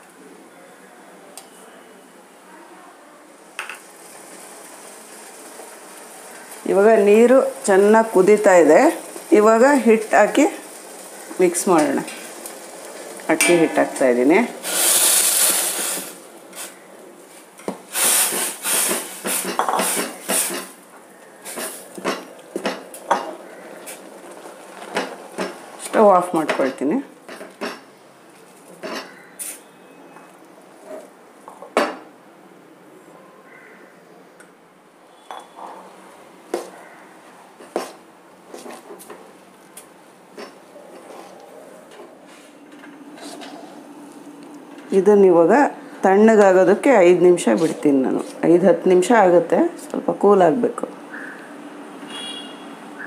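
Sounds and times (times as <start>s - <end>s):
flour hissing into boiling water: 3.3s - 29.7s, 37.6s - 41.3s.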